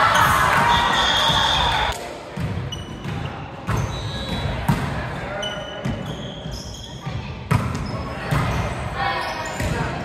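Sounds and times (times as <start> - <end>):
shoe squeaks: 2.7 - 3.1, 3.7 - 4.5, 5.4 - 8.2, 9.2 - 9.6.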